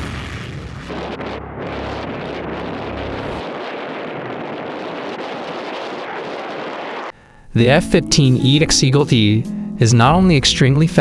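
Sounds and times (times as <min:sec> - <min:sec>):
fighter jet taking off: 0:00.0 - 0:07.3.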